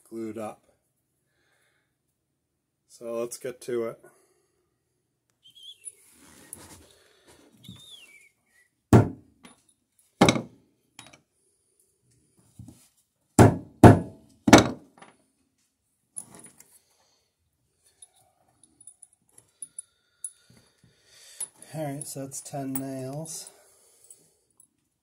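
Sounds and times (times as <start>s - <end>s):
hammer striking nails on wood: 9.0s - 9.2s, 10.2s - 10.5s, 13.4s - 14.8s.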